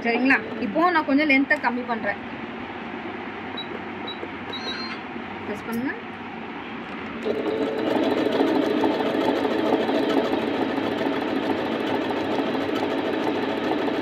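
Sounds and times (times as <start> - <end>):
sewing machine stitching: 7.2 - 14.0.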